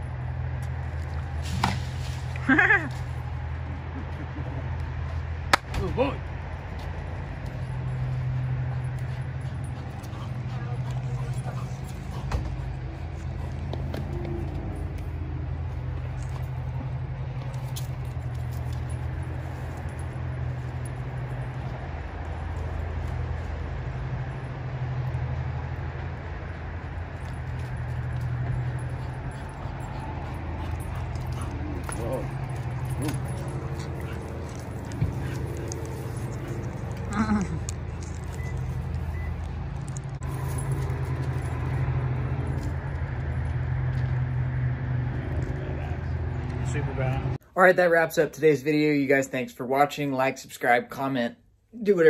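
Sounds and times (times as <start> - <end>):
outdoor background noise: 0.0 - 52.0
vehicle engine idling: 6.5 - 47.4.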